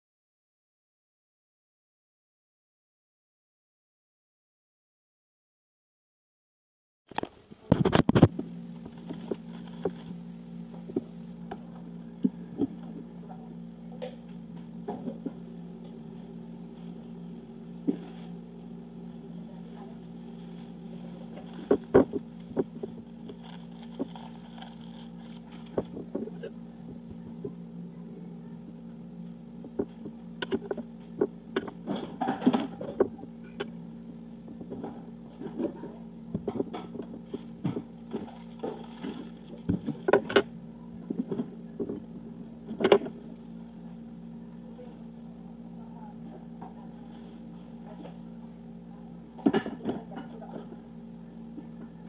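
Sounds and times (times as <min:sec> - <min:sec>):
low appliance hum: 0:07.1 - 0:52.0
aluminium foil crinkling: 0:19.0 - 0:26.3, 0:37.2 - 0:40.1.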